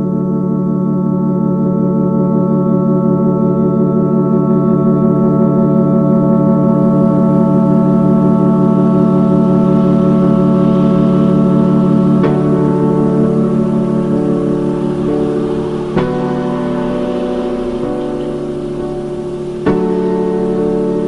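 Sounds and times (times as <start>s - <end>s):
sustained drone chord: 0.0s - 21.0s
faint hiss: 6.7s - 21.0s.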